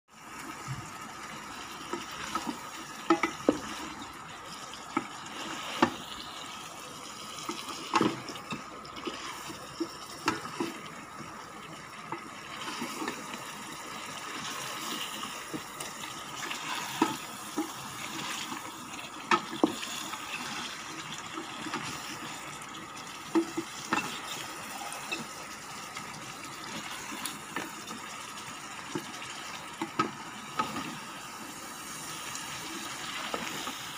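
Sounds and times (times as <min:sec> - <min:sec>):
food sizzling: 0:00.1 - 0:33.9
wooden spatula scraping metal pot: 0:07.5 - 0:11.2, 0:12.1 - 0:13.5, 0:14.1 - 0:22.4, 0:23.3 - 0:25.4.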